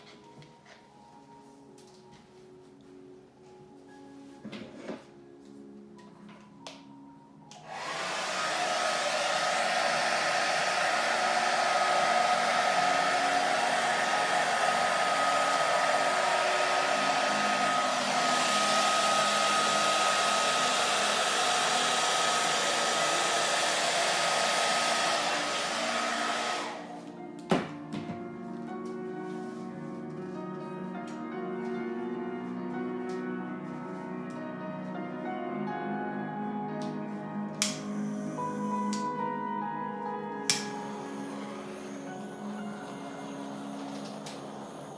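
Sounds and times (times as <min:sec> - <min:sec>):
hair dryer whining: 0:07.5 - 0:27.7, 0:37.6 - 0:39.2, 0:40.4 - 0:44.9.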